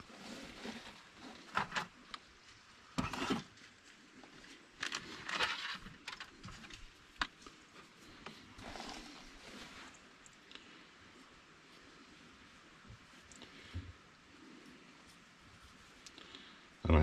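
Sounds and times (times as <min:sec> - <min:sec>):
scraping and rustling: 0:00.0 - 0:10.4.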